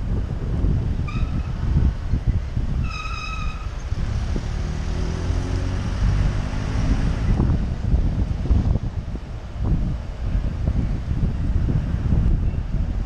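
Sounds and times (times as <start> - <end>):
city street traffic: 0.0 - 13.0
vehicle engine hum: 0.0 - 13.0
wind rumble on microphone: 0.0 - 13.0
vehicle horn beep: 1.1 - 1.5.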